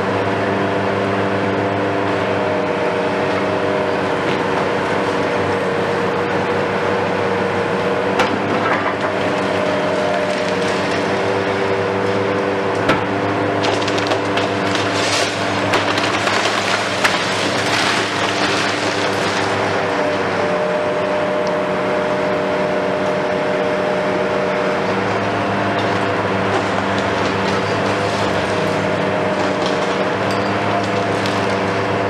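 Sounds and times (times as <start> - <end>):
excavator engine and hydraulics hum: 0.0 - 32.0
masonry cracking: 8.2 - 12.0, 12.8 - 20.3, 25.8 - 32.0
debris clattering down: 13.6 - 19.6.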